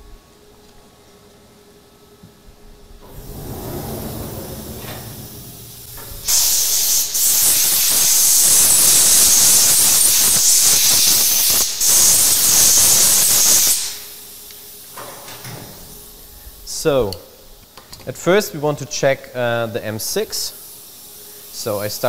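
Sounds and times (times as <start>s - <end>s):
machine door sliding open: 3.0s - 7.4s
compressed air blow gun hissing: 3.0s - 14.9s.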